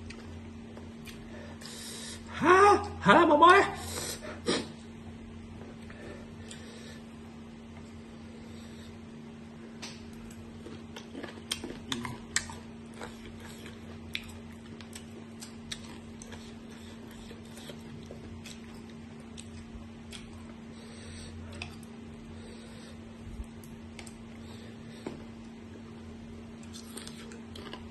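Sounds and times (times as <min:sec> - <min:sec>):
person chewing mango: 0:00.0 - 0:01.4, 0:10.0 - 0:27.9
steady low hum: 0:00.0 - 0:27.9.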